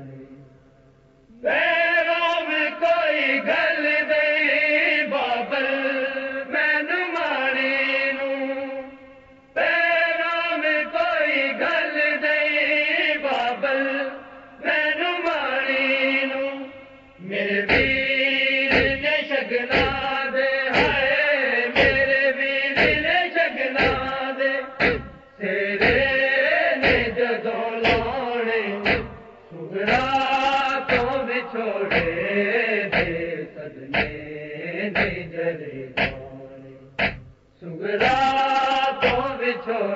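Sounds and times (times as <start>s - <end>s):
group chanting a lament: 1.3s - 39.9s
hands striking chests: 21.8s - 22.1s, 22.8s - 23.1s, 24.8s - 25.2s, 26.8s - 27.2s, 27.8s - 28.2s, 28.8s - 29.2s, 37.0s - 37.4s.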